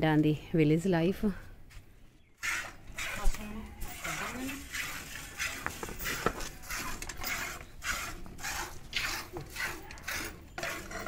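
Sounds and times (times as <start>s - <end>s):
milk squirting into bucket: 2.4s - 10.8s.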